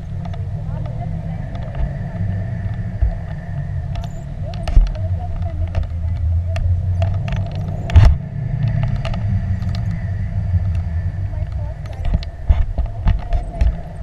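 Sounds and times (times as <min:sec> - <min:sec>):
sharp clicks and knocks: 0:00.0 - 0:10.0, 0:10.7 - 0:14.0
thumps: 0:00.0 - 0:10.0
wind buffeting microphone: 0:00.0 - 0:14.0
faint steady whistle: 0:01.2 - 0:04.8.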